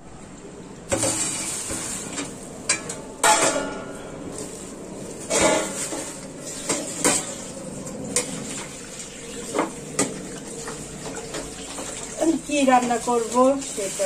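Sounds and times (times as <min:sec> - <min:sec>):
metal dishes clanking: 0:00.9 - 0:04.0, 0:05.3 - 0:07.5.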